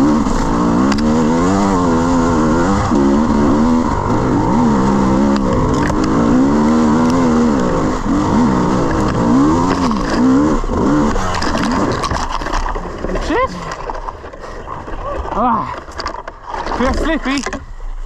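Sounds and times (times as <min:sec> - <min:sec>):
dirt bike engine revving: 0:00.0 - 0:13.8.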